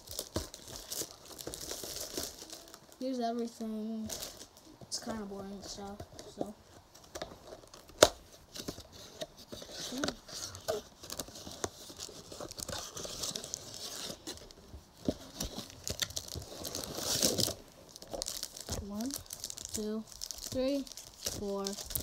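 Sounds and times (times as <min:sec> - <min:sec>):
paper and plastic crinkling: 0:00.0 - 0:22.0.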